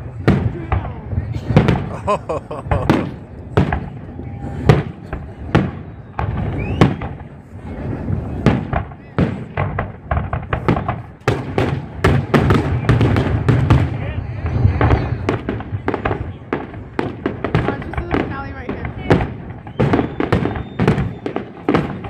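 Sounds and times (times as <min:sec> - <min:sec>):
firework shells bursting: 0:08.4 - 0:22.0.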